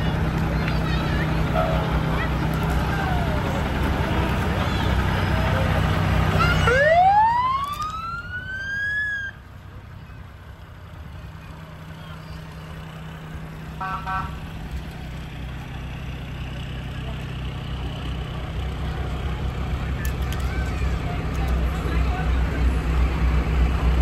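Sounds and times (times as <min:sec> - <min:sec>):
truck engine running: 0:00.0 - 0:24.0
fire engine siren: 0:02.6 - 0:09.4, 0:13.8 - 0:14.4.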